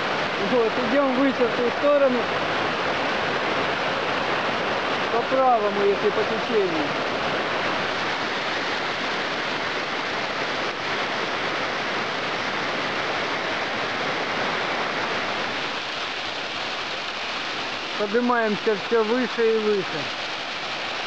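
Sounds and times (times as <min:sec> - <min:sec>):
stream rushing over rocks: 0:00.0 - 0:21.0.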